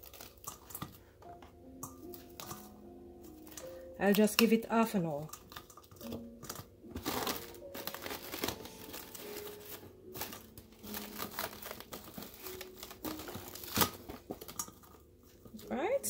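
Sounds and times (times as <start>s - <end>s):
plastic cling wrap crinkling: 0.0s - 16.0s.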